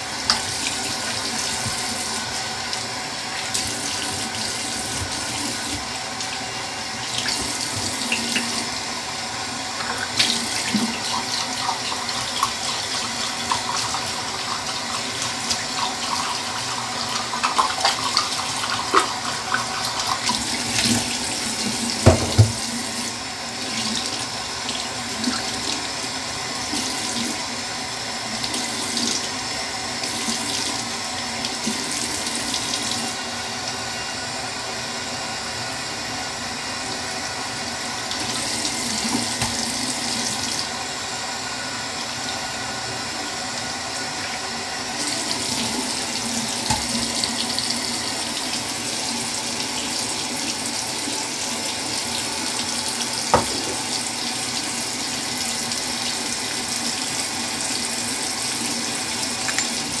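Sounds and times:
tap running into sink: 0:03.6 - 0:05.9, 0:07.2 - 0:08.7, 0:17.3 - 0:23.1, 0:38.1 - 0:40.6, 0:46.4 - 0:47.5, 0:53.0 - 0:54.5, 0:59.2 - 1:00.0.

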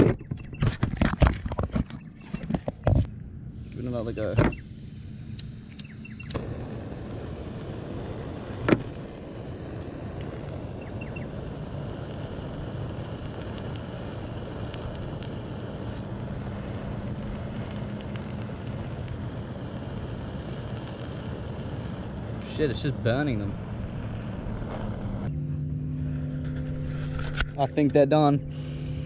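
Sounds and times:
flamethrower rushing hiss: 0:03.4 - 0:25.3
sharp click: 0:05.3 - 0:06.4.

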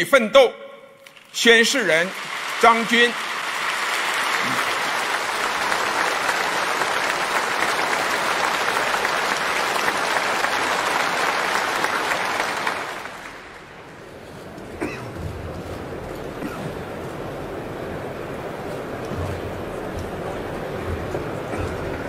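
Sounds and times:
audience applauding: 0:01.1 - 0:14.4.

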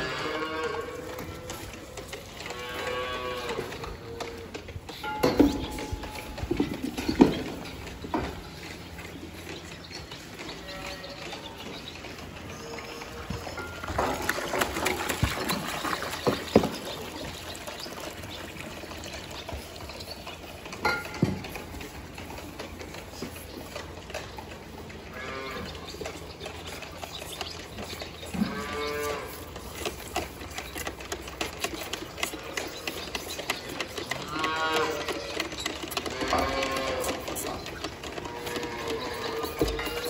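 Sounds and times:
calves mooing: 0:00.0 - 0:04.6, 0:10.3 - 0:11.7, 0:25.0 - 0:26.7, 0:27.8 - 0:30.2, 0:31.8 - 0:40.0.

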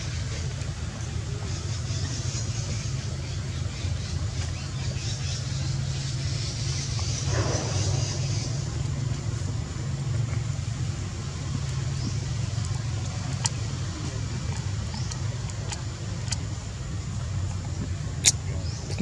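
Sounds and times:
low engine rumble: 0:00.0 - 0:19.0.

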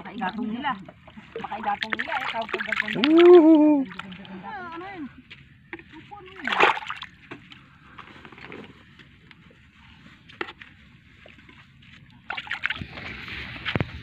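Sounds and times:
water sloshing and splashing: 0:00.0 - 0:14.0.

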